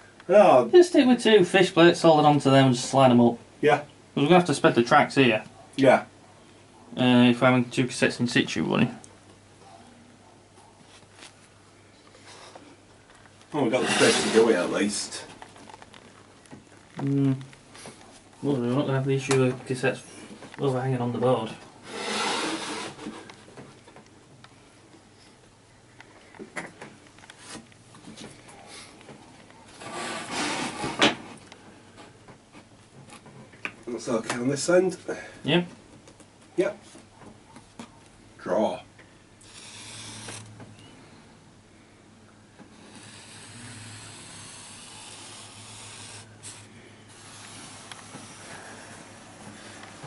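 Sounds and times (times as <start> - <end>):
marker pen scratching on wood: 13.8 - 14.7, 21.9 - 23.3, 39.4 - 40.5, 42.7 - 48.6.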